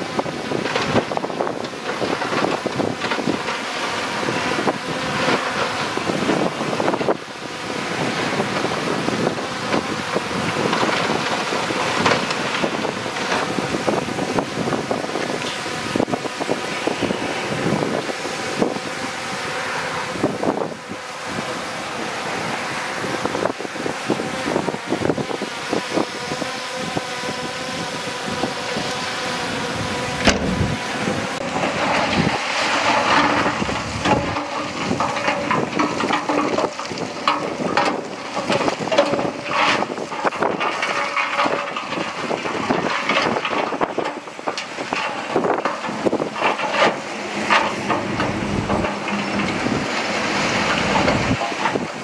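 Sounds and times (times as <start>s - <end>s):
diesel engine running under load: 30.2s - 35.9s, 46.8s - 51.9s
tracks and rock clanking: 45.1s - 51.9s.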